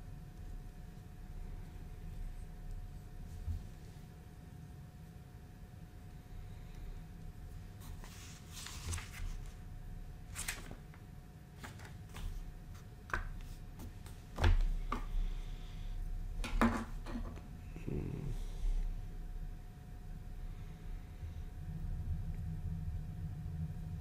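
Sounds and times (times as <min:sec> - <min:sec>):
plastic rustling: 0:07.8 - 0:09.6.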